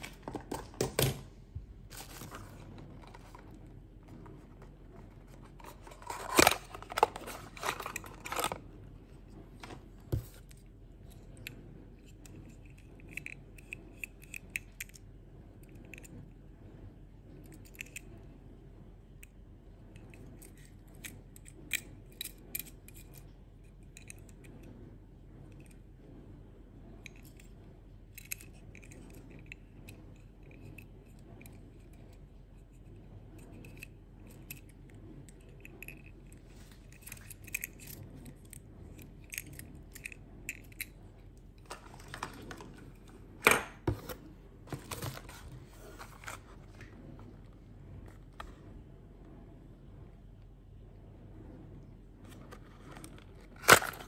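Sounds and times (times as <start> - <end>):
toy parts clicking: 36.9 - 41.0.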